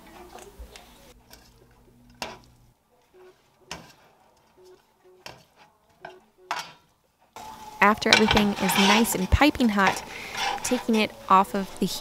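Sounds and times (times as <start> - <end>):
metal tongs clinking on pan: 7.8 - 12.0.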